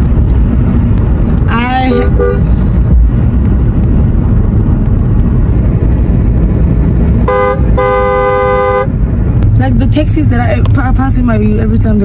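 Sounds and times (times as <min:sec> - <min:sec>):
road and engine rumble inside car: 0:00.0 - 0:12.0
two-note car horn honking: 0:07.3 - 0:08.9.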